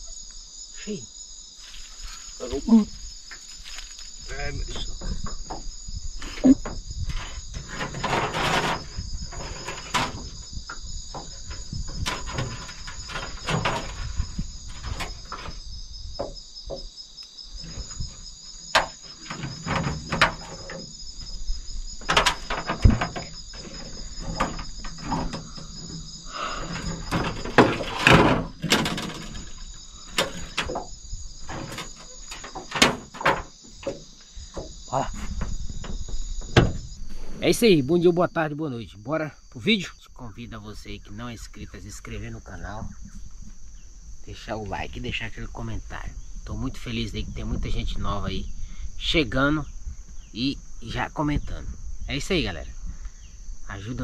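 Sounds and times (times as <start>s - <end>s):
insects trilling: 0.0s - 54.0s
rustling: 1.5s - 4.4s
knocks and clatters: 6.6s - 15.6s, 17.6s - 21.4s, 22.0s - 37.0s.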